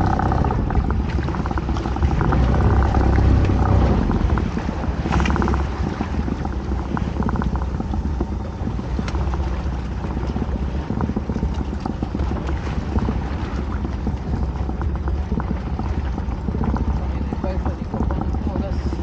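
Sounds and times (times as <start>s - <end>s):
water slapping against boat: 0.0s - 19.0s
wind buffeting microphone: 0.0s - 19.0s.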